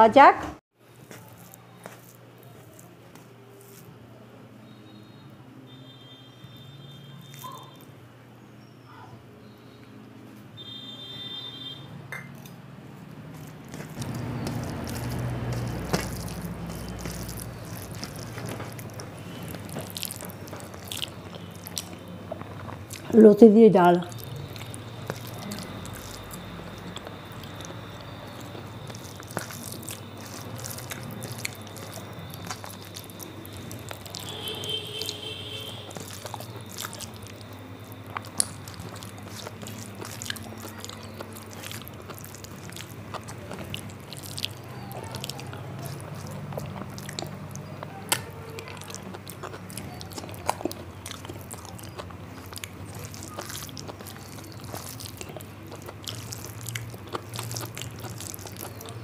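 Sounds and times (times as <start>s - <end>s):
person chewing food: 0.9s - 3.9s, 13.3s - 23.2s, 24.0s - 59.0s
low steady hum: 10.6s - 59.0s
wet mouth clicks and smacks: 35.9s - 59.0s.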